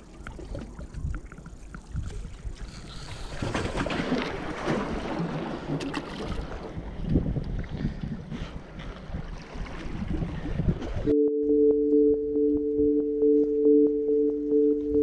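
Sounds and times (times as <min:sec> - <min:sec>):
wind buffeting microphone: 0:06.2 - 0:11.1.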